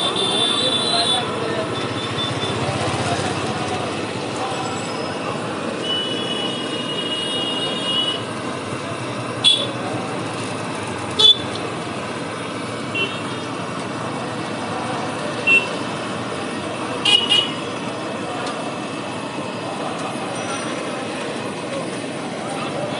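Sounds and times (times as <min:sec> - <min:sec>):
vehicle horn: 0:00.0 - 0:02.6, 0:05.8 - 0:08.3, 0:09.4 - 0:09.8, 0:11.2 - 0:11.5, 0:12.9 - 0:13.5, 0:15.4 - 0:15.8, 0:17.0 - 0:17.6
street traffic: 0:00.0 - 0:22.9.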